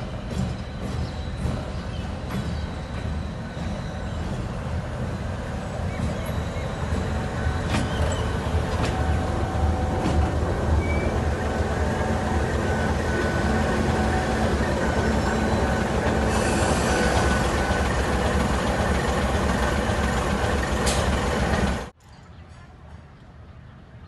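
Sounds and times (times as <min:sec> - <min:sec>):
diesel locomotive rumbling: 0:00.0 - 0:22.0.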